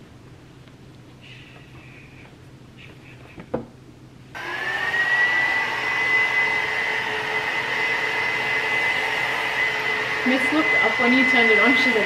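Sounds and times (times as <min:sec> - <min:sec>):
hair dryer whine and blowing: 0:04.3 - 0:12.0.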